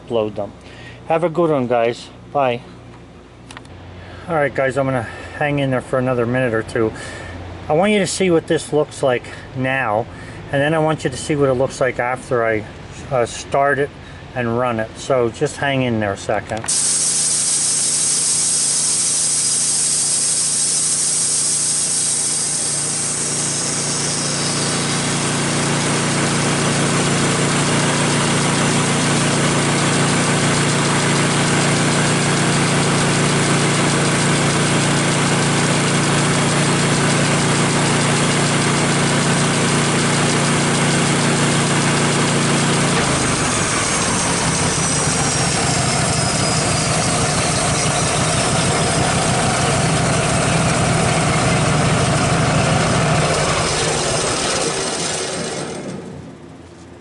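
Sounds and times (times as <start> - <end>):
sawmill engine running: 16.6 - 56.9
band saw blade spinning: 16.7 - 56.2.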